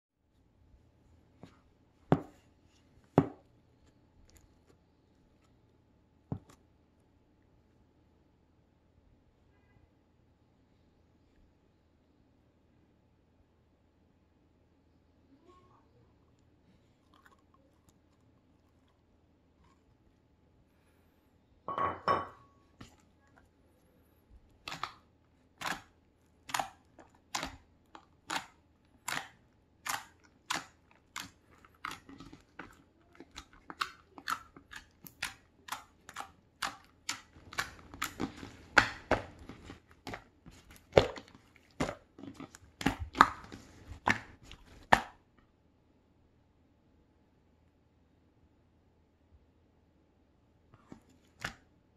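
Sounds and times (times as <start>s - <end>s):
slime squelch: 16.0s - 21.3s, 22.6s - 45.4s
slime popping and crackling: 25.6s - 45.2s.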